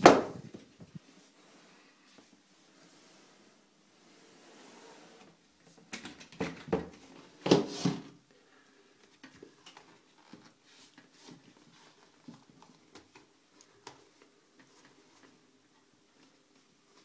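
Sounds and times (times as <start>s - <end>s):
rustling and scraping: 0.0s - 8.2s, 9.0s - 17.0s.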